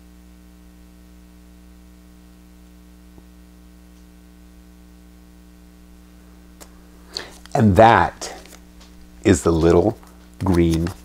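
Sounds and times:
low electrical hum: 0.0s - 11.0s
background hiss: 5.8s - 11.0s.

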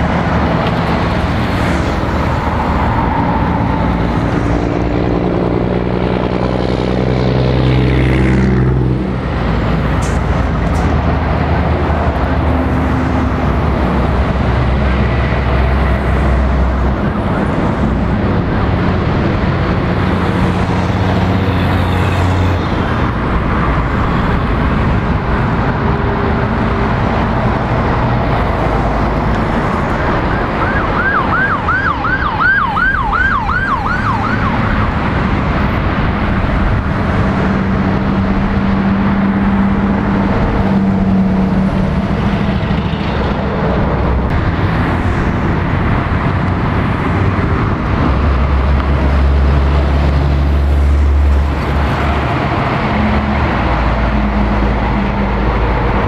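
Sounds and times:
heavy road traffic passing: 0.0s - 56.0s
truck diesel engine droning: 0.0s - 56.0s
siren yelping: 30.2s - 35.1s.

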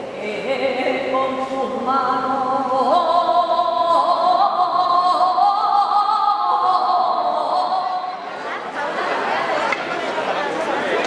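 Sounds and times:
woman singing unaccompanied: 0.0s - 8.2s.

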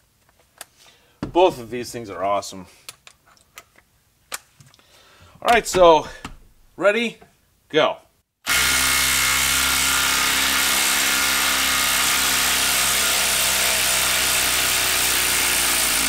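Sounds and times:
impact driver hammering: 8.5s - 16.0s.

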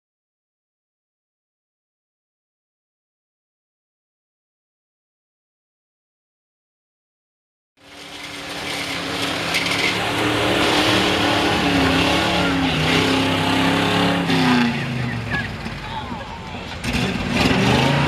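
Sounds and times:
pickup engine revving: 7.8s - 15.9s, 16.6s - 18.0s.

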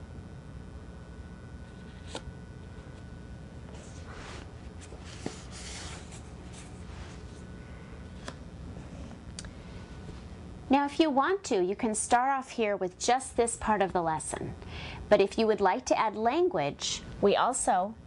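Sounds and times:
low room hum: 0.0s - 18.0s
paper rustling: 3.7s - 7.4s.

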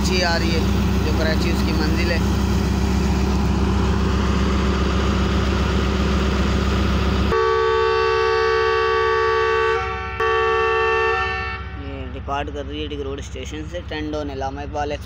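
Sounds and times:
locomotive engine running: 0.0s - 15.0s
locomotive horn chord: 7.3s - 12.1s.

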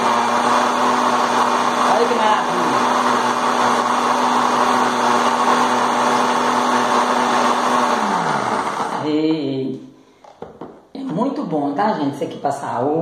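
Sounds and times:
blender running: 0.0s - 9.3s.

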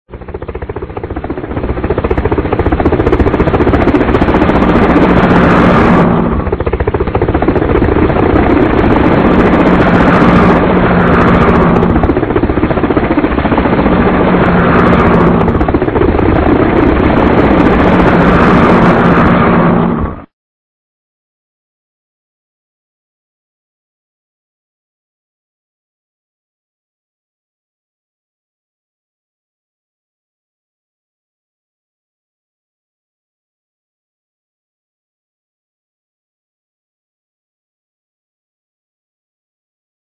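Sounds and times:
helicopter drone: 0.1s - 20.3s.

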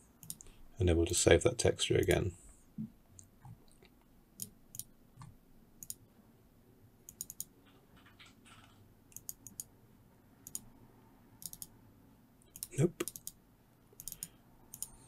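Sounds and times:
faint computer mouse clicks: 4.4s - 6.0s, 7.1s - 7.5s, 14.0s - 15.0s.

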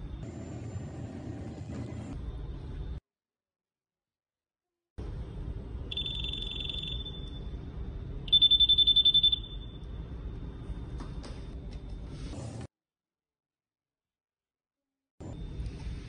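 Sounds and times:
metal detector alarm beeping: 5.9s - 7.5s, 8.3s - 9.8s.

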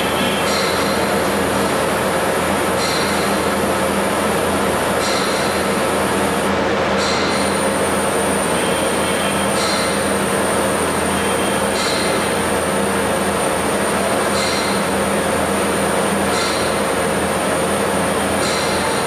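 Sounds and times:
tube-cutting machine running: 0.0s - 19.0s.

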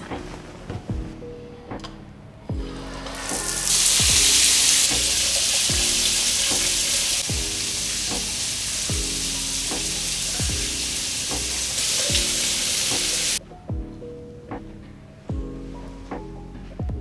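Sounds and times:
background music with beat: 0.0s - 17.0s
water spraying from shower head: 2.8s - 13.4s.

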